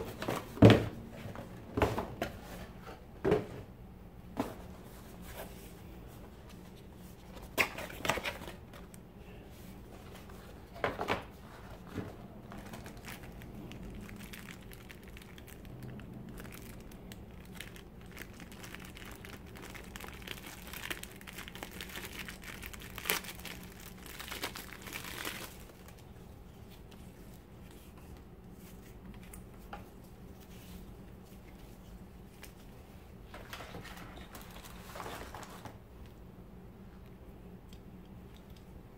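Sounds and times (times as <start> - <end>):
plastic packaging crinkling: 12.4 - 26.1, 33.3 - 35.8.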